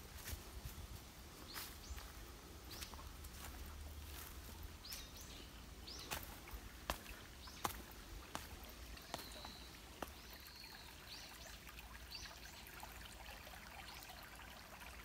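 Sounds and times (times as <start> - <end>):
footsteps on leafy steps: 0.0 - 10.4
high bird chirps: 9.0 - 11.4.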